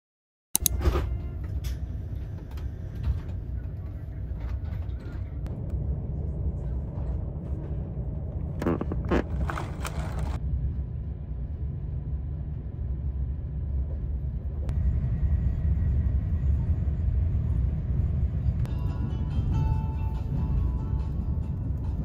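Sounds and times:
train rumbling on rails: 0.6 - 22.0
soft music: 18.7 - 22.0.

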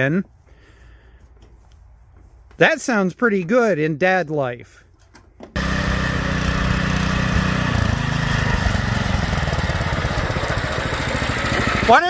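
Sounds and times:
small engine running: 5.6 - 12.0.

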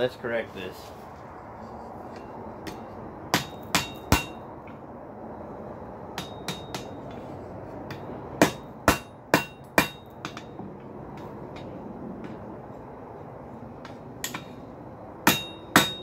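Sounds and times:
hammer striking steel on anvil: 2.1 - 4.4, 6.2 - 7.2, 7.9 - 10.6, 13.8 - 14.6, 15.2 - 16.0.

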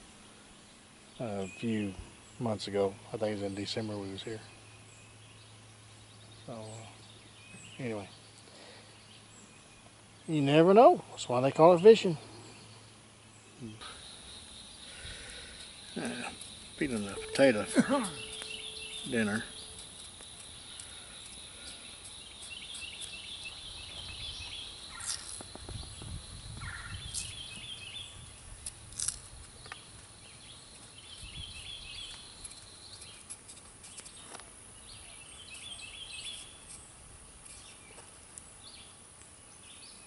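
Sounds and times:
faint insect tone: 0.1 - 40.0
bird singing high notes: 13.5 - 25.2.

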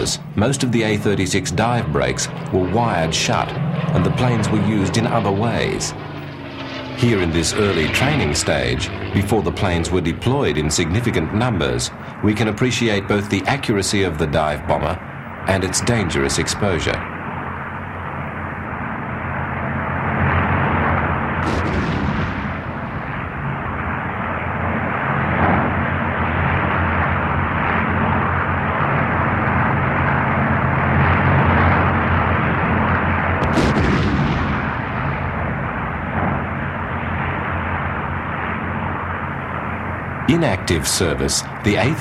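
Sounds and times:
bombs exploding: 21.4 - 23.8, 33.4 - 37.0.

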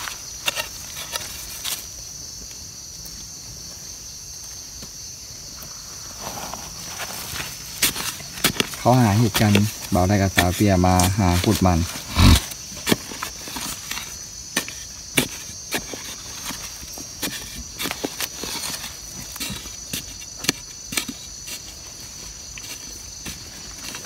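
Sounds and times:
digging bar striking soil: 0.0 - 1.9, 6.4 - 21.9
insect drone: 0.0 - 24.0.

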